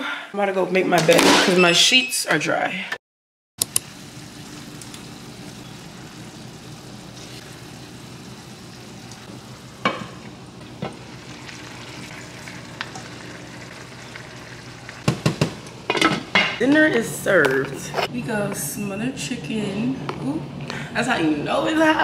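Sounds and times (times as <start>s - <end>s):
food sizzling in a pan: 3.8s - 15.6s.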